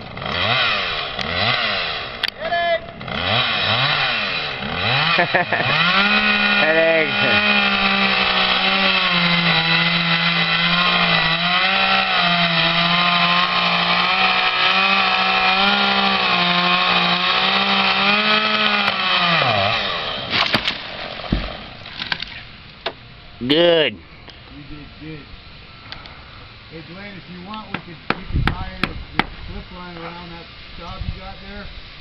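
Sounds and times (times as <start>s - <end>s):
chainsaw cutting wood: 0.0s - 22.3s
sharp knocks: 20.3s - 21.6s, 27.7s - 29.4s.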